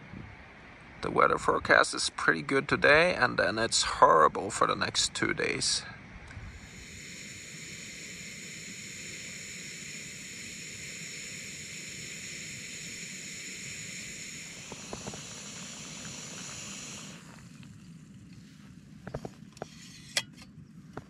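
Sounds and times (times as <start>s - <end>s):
gas stove burner hissing: 4.3s - 17.8s.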